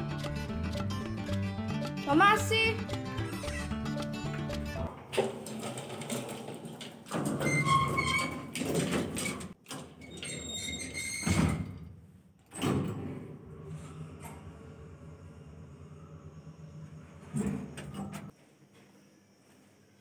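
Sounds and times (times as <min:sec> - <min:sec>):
metal grille gate rattling and squealing: 0:05.5 - 0:11.6.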